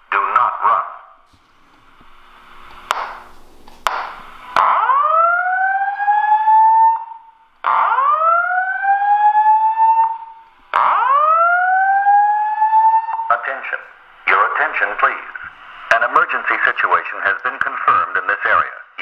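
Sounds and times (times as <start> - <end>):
rising whoop alarm tone: 4.6 - 13.3.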